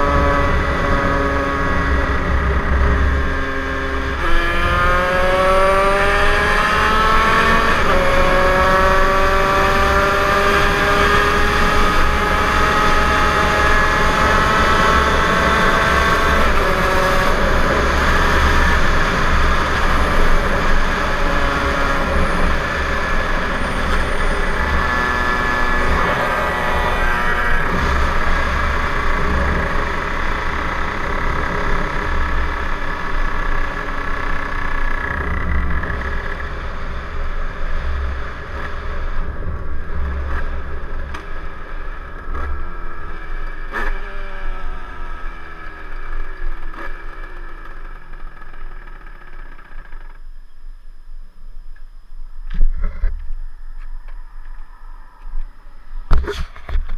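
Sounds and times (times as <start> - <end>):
moped engine running: 6.6 - 50.2.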